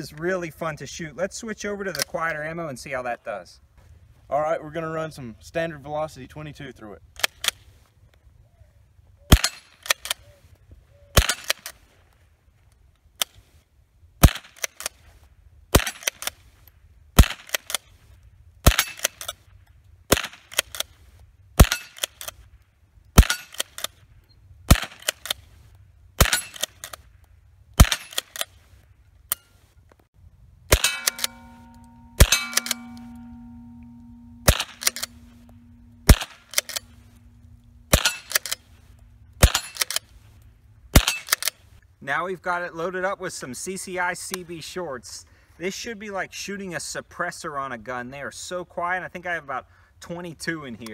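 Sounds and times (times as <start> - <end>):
rifle shots cracking: 21.6 - 22.1, 24.7 - 25.4, 26.2 - 27.0, 27.8 - 28.5, 30.7 - 40.1, 41.0 - 41.5
ringing tone: 30.7 - 39.8.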